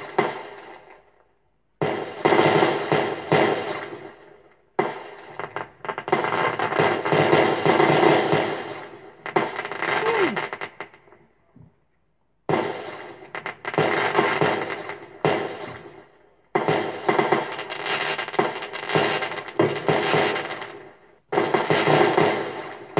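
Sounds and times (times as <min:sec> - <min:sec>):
fireworks crackling bangs: 0:00.0 - 0:01.2, 0:01.8 - 0:11.2, 0:12.4 - 0:22.9
falling firework whistle: 0:09.7 - 0:10.6.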